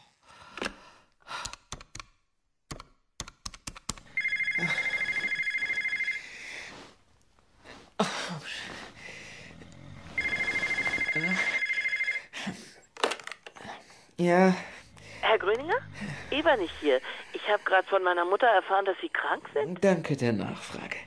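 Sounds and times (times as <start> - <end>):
telephone bell ringing: 4.1 - 6.4, 10.1 - 12.4.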